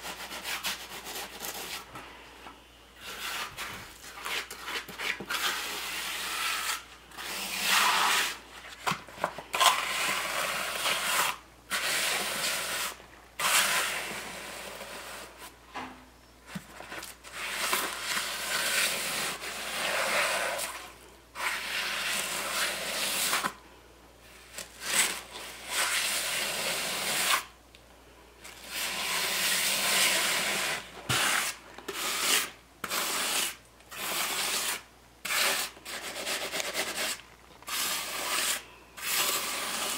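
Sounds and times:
trowel scraping wet concrete: 3.0s - 8.4s, 9.5s - 15.2s, 17.4s - 20.8s, 21.4s - 23.6s, 24.6s - 27.4s, 28.7s - 39.9s.

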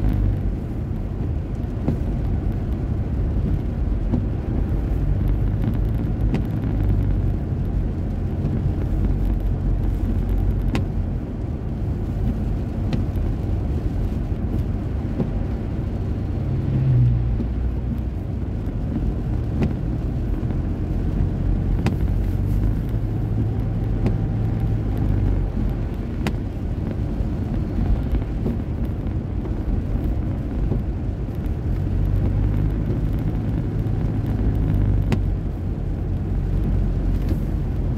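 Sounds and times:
car road noise on wet road: 0.0s - 37.9s.

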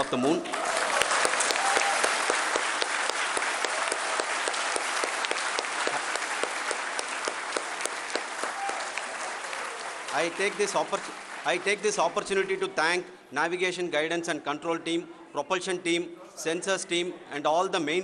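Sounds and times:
large crowd applauding: 0.0s - 12.6s.

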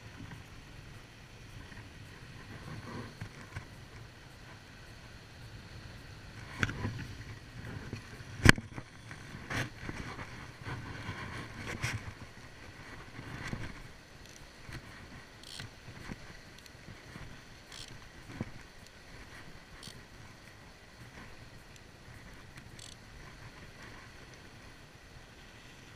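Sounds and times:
fishing rod knocking and rubbing: 14.3s - 18.5s.

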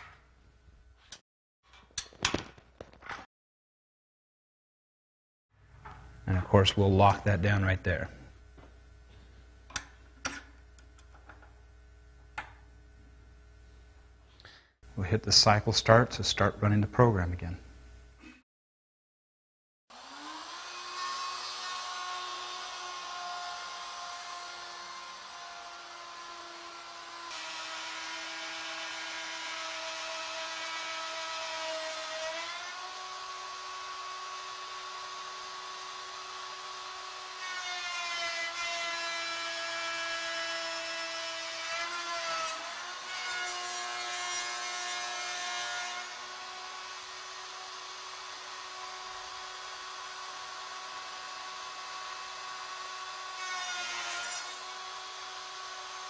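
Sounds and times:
router bit cutting wood: 19.9s - 56.0s.

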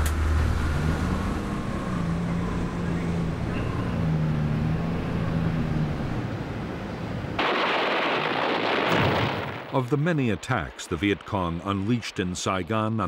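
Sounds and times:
low engine-like drone: 0.0s - 7.4s
gunfire and explosions: 7.4s - 12.6s.

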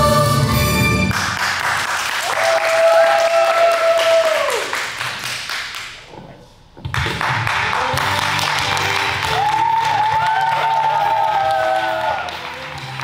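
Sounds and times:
backing music: 0.0s - 1.4s, 7.4s - 13.0s
audience clapping and cheering: 1.0s - 6.1s, 6.9s - 13.0s.

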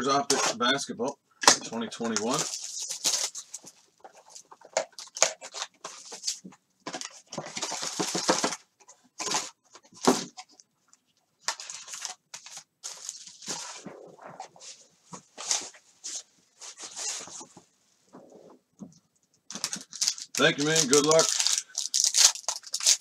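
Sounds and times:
packaging crinkling and tearing: 1.6s - 8.6s, 11.4s - 14.4s, 19.5s - 23.0s.

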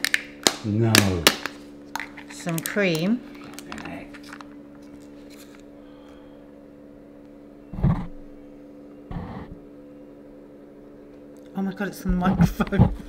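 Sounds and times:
low hum of even tones: 1.5s - 13.0s.

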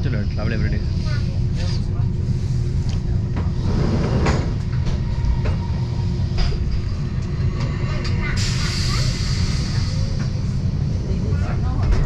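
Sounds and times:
train rumbling on track: 0.0s - 12.0s.

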